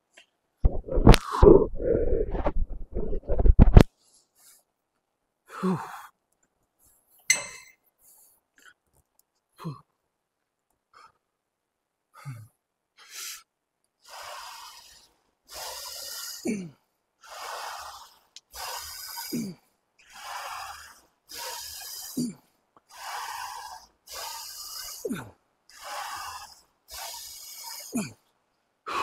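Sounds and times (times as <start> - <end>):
man breathing hard: 12.1 - 28.3.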